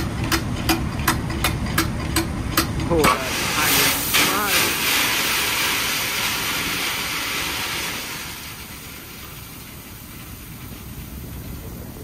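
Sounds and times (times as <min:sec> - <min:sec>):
low steady machinery rumble: 0:00.0 - 0:12.0
machinery hiss: 0:03.1 - 0:12.0.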